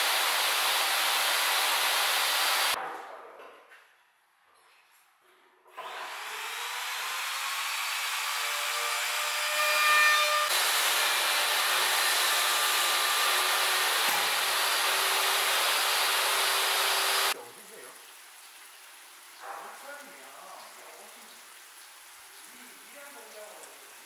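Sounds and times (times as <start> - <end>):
power tool whirring on wood: 0.0 - 2.8, 5.7 - 17.4.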